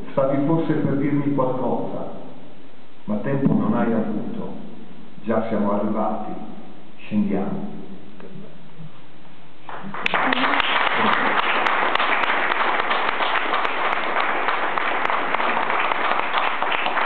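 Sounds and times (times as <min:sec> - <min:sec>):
audience applause: 0:09.7 - 0:17.0.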